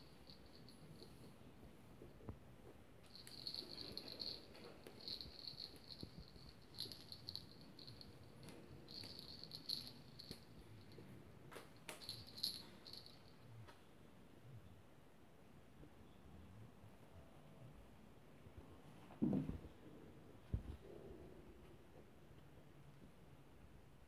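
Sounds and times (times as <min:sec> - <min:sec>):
hanging toy rattling: 0:03.1 - 0:10.9, 0:11.9 - 0:13.3.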